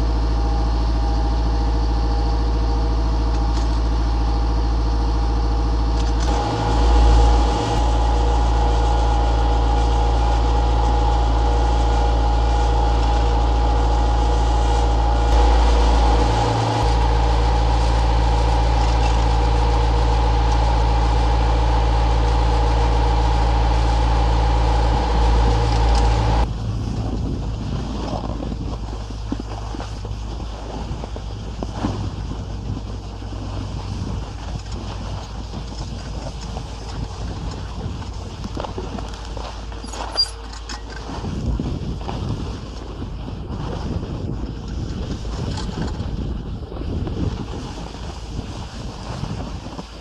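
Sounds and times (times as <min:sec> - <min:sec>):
mechanical whine: 0:00.0 - 0:27.3, 0:39.7 - 0:41.1
diesel engine drone: 0:00.0 - 0:43.6
wind rush: 0:06.3 - 0:39.4, 0:41.0 - 0:50.0.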